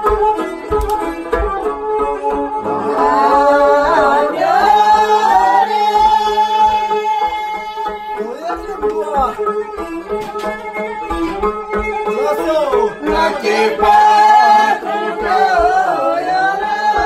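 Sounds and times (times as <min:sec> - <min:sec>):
lutes strumming dance tune: 0:00.0 - 0:17.0
person singing: 0:00.3 - 0:08.2, 0:12.8 - 0:17.0.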